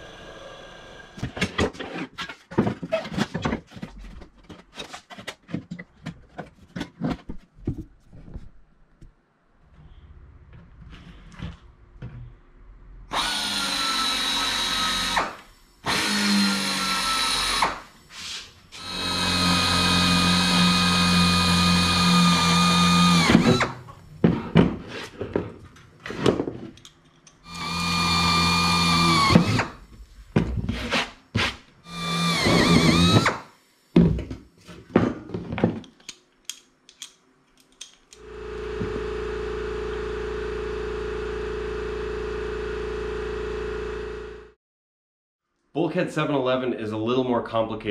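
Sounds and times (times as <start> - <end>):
pneumatic drill whining: 13.1 - 24.4, 27.4 - 29.9, 31.8 - 33.5.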